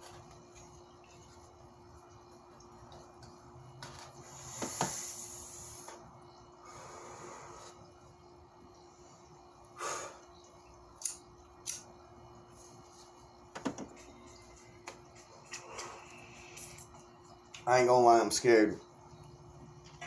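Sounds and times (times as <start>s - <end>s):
breathy puff: 9.8s - 10.2s.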